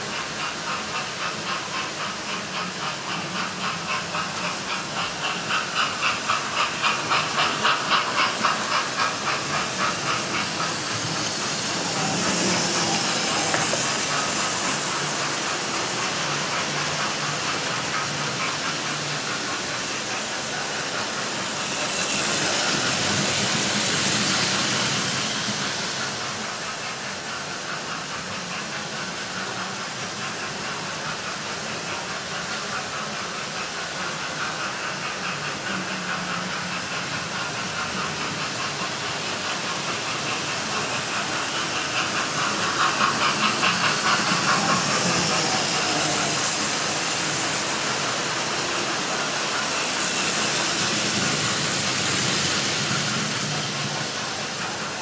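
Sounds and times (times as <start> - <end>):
model steam train hissing and chuffing: 0.0 - 55.0
wheels clicking over rail joints: 34.0 - 55.0.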